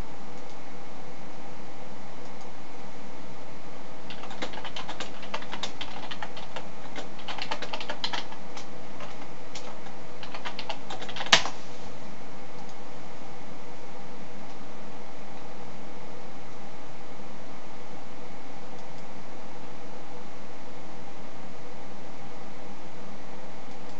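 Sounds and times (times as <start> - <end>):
typing on computer keyboard: 4.1 - 11.5.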